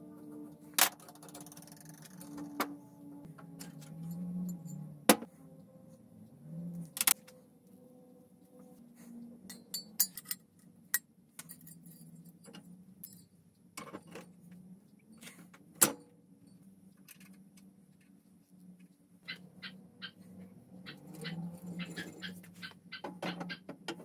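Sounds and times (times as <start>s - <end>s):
small metal parts clinking: 9.5s - 10.6s, 11.4s - 13.4s.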